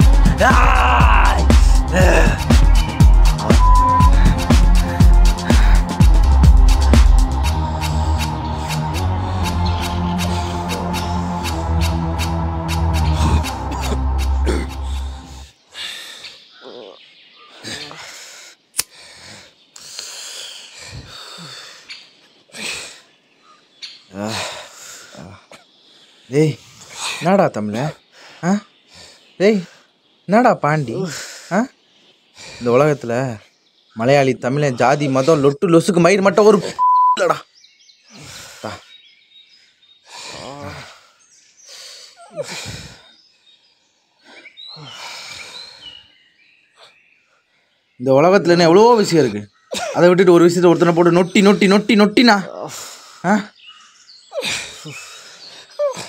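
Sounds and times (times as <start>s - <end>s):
man groaning: 0.0s - 5.9s, 13.1s - 15.1s, 40.4s - 40.9s
men breathing hard: 0.0s - 16.4s, 17.6s - 21.9s, 38.1s - 38.9s, 40.0s - 43.2s, 44.1s - 46.1s, 52.7s - 55.8s
man groaning exhales: 0.2s - 2.5s, 40.2s - 41.0s
man grunting: 0.2s - 3.6s, 13.2s - 14.8s, 40.4s - 40.9s.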